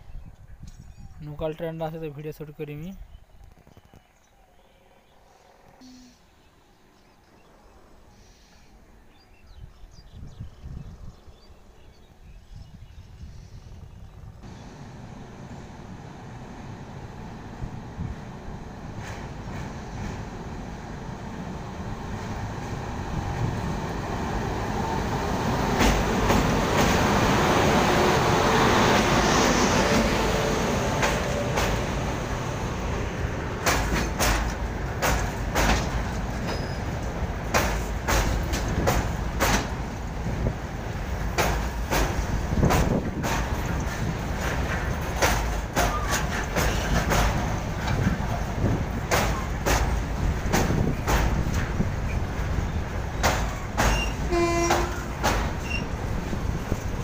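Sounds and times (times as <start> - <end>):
train rumbling on bridge: 9.6 - 57.0
sharp clacks: 33.6 - 39.7, 41.4 - 48.1, 49.1 - 51.8, 53.2 - 55.6.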